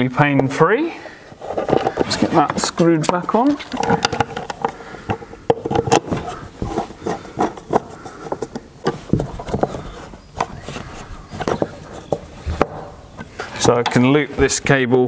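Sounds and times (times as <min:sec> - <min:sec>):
screwdriver clicking and scraping: 0:01.3 - 0:09.8.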